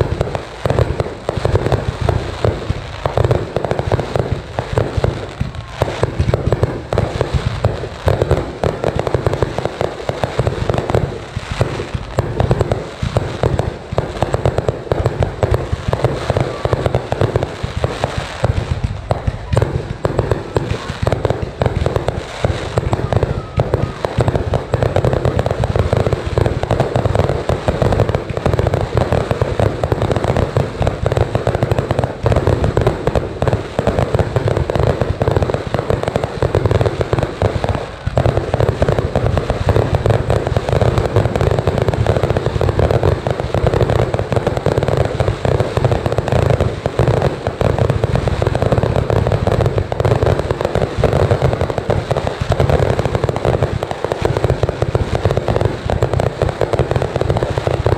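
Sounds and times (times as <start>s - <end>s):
fireworks bursting: 0.0s - 57.9s.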